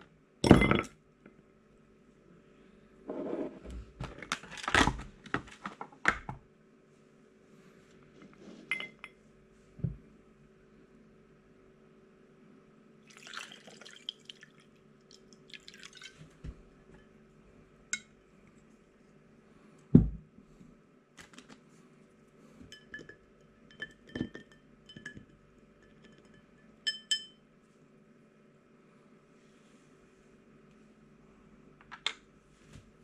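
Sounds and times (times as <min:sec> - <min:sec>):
whisky pouring into glass: 0:13.0 - 0:16.3.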